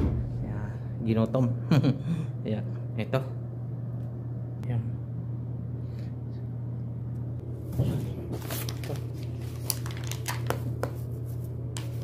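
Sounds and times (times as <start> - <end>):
steady low hum: 0.0 - 12.0
food packaging crinkling: 8.4 - 12.0.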